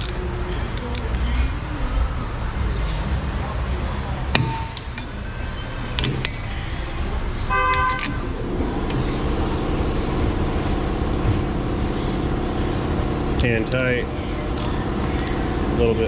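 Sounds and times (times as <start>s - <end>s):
low shop hum: 0.0s - 16.0s
buzzy machine rumble: 1.5s - 16.0s
short horn-like tone: 7.5s - 8.4s.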